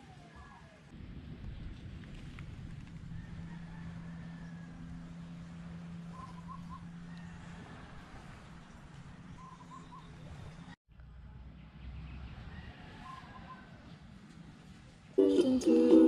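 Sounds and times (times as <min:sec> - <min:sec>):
bird calling: 0:06.0 - 0:07.3, 0:09.3 - 0:10.6.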